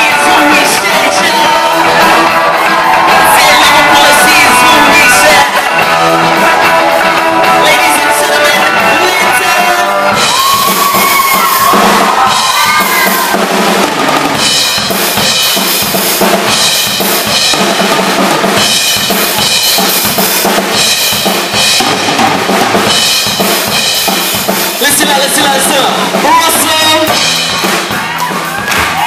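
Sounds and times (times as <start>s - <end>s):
electric guitar: 0.0s - 24.8s
drum kit played hard: 0.0s - 29.0s.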